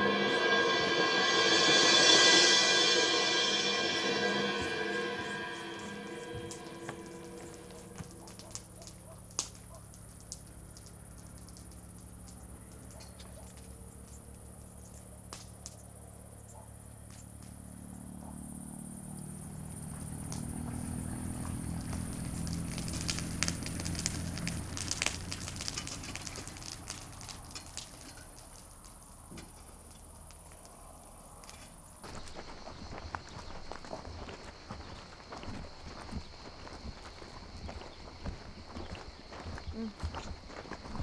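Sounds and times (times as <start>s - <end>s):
fire crackling and popping: 7.3s - 15.8s, 20.0s - 41.0s.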